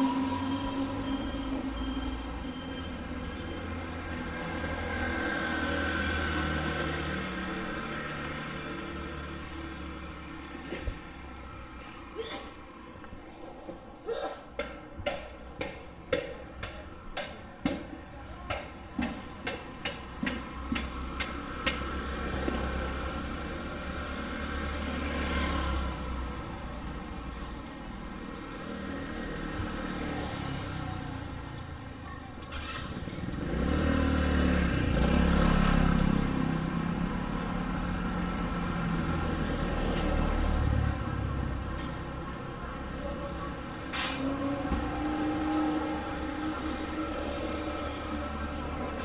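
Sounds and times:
vehicle engine passing by: 0:03.8 - 0:10.2, 0:20.2 - 0:31.7, 0:32.5 - 0:49.0.

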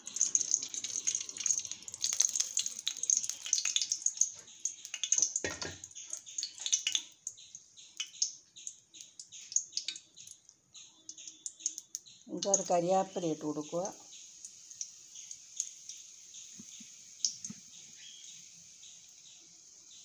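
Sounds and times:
oil pouring: 0:00.0 - 0:07.3
hot oil sizzling and popping: 0:00.0 - 0:20.0.

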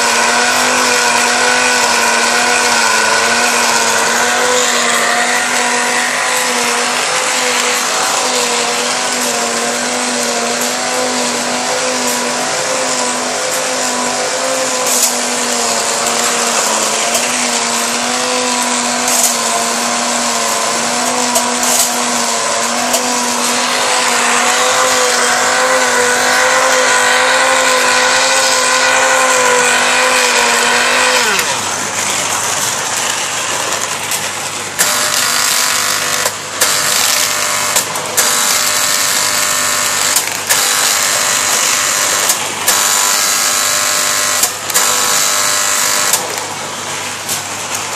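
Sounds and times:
buzzing with sharp knocks: 0:00.0 - 0:47.9
toy train motor humming: 0:00.0 - 0:47.9.

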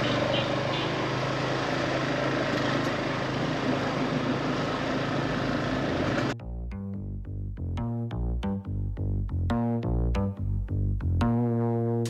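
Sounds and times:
motorbike engine hum: 0:00.0 - 0:06.4
road noise: 0:00.0 - 0:06.4.

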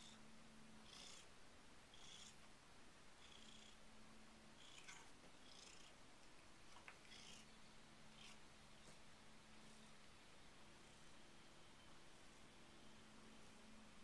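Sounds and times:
cat purring: 0:00.8 - 0:01.3, 0:01.9 - 0:02.5, 0:03.2 - 0:03.9, 0:04.5 - 0:10.0.

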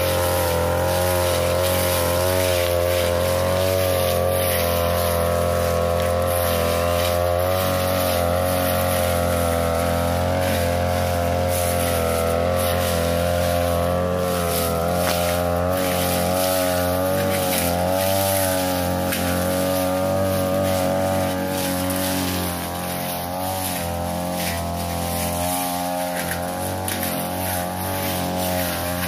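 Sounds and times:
brush cutter engine at high revs: 0:00.0 - 0:29.0.

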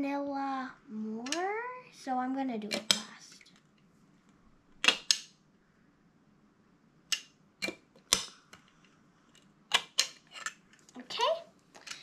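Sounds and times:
plastic toys clicking: 0:04.8 - 0:05.3, 0:09.4 - 0:10.6.

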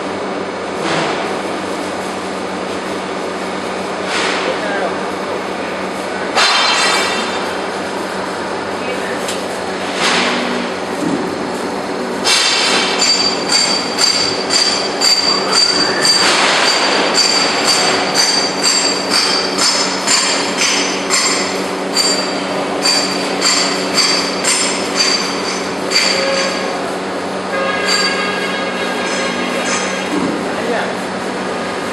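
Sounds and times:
ringing metallic clanks: 0:06.4 - 0:07.5, 0:12.3 - 0:26.9, 0:27.5 - 0:30.2.

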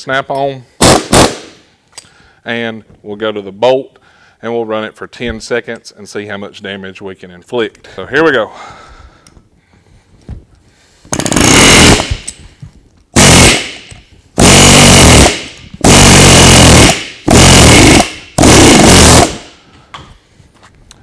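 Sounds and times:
pneumatic air hammer on steel: 0:11.1 - 0:12.4, 0:13.2 - 0:19.5.

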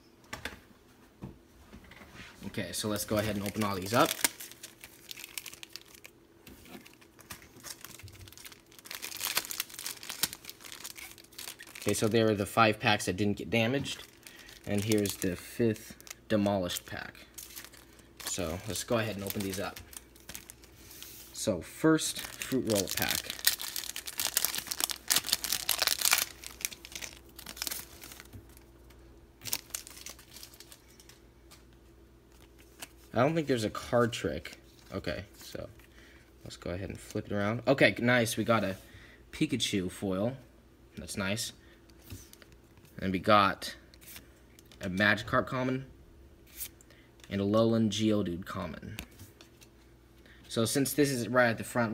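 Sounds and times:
foil wrappers crinkling: 0:02.8 - 0:12.6, 0:13.4 - 0:31.2.

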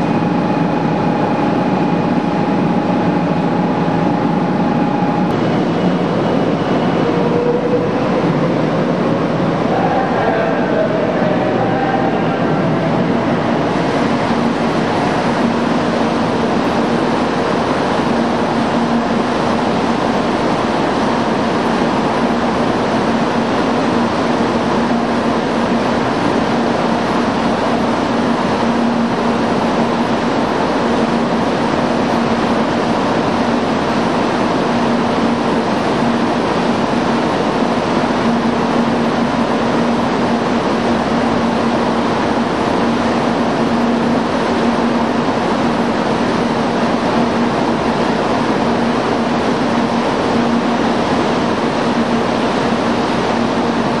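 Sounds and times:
constant rushing noise: 0:00.0 - 0:54.0
train hum: 0:00.0 - 0:54.0.

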